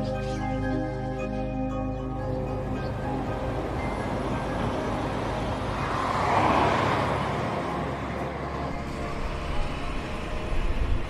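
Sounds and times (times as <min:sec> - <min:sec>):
car driving past: 0:03.8 - 0:11.0.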